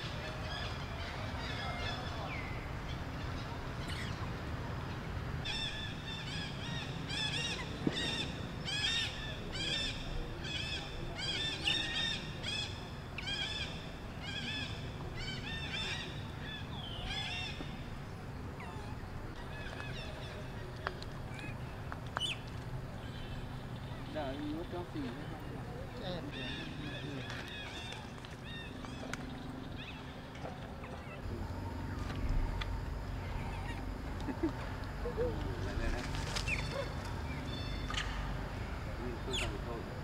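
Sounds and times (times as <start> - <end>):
high-pitched animal calls: 26.2 - 38.1.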